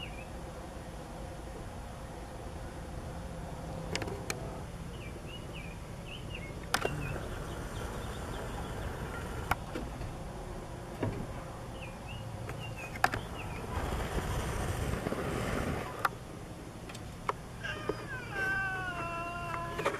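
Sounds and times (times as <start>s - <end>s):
sharp clicks: 6.6s - 7.0s
cat yowling: 17.6s - 19.9s.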